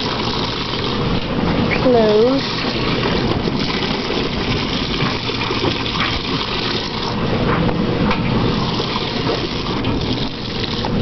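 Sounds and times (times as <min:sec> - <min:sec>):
water running into washing machine: 0:00.0 - 0:11.0.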